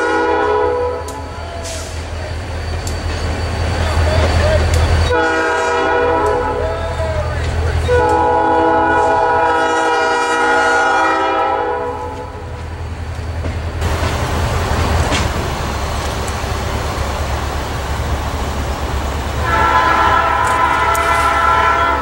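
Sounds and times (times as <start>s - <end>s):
locomotive air horn blowing: 0.0s - 1.9s, 5.1s - 6.8s, 7.8s - 12.5s, 19.4s - 22.0s.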